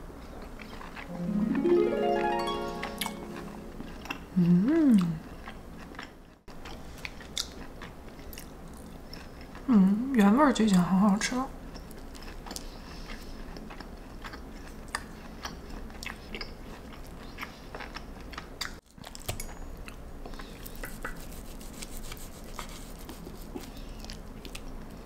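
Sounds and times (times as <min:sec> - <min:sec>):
person chewing food: 0:04.0 - 0:09.7, 0:11.7 - 0:25.0.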